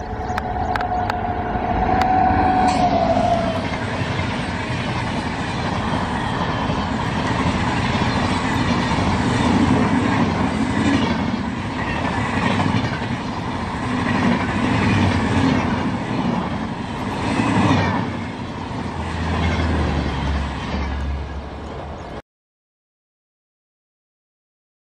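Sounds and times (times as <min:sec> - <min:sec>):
low rumble: 0:00.0 - 0:04.4
train wheels rushing on rails: 0:00.0 - 0:22.1.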